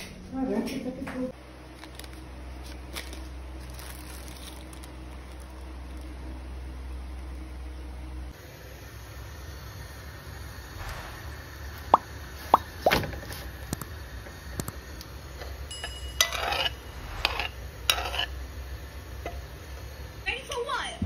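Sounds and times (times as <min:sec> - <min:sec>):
low steady hum: 0:00.0 - 0:21.0
flatbread crinkling: 0:01.7 - 0:06.2.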